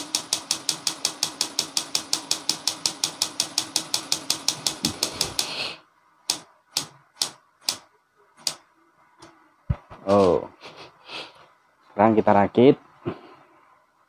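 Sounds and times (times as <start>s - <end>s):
camera shutter clicking rapidly: 0.0s - 5.6s
shutter motor humming: 0.0s - 7.8s.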